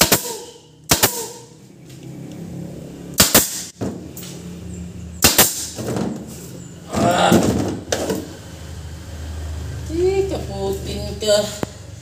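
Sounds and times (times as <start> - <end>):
pneumatic staple gun firing: 0.0 - 1.4, 3.2 - 3.7, 5.2 - 5.8.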